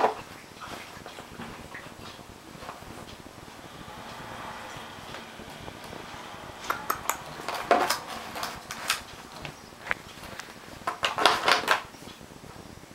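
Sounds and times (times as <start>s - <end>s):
dog chewing plastic bottle: 10.2s - 11.8s.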